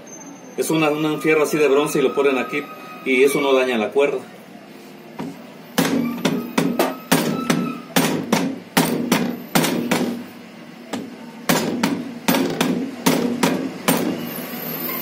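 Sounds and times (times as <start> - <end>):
rubber mallet striking metal: 5.8 - 10.2, 10.9 - 14.2.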